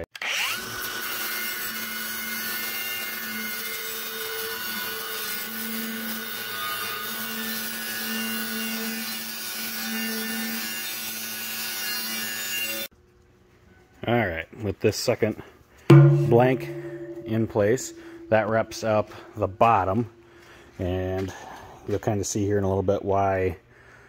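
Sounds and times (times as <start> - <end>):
faint wavering hum: 15.9 - 20.5.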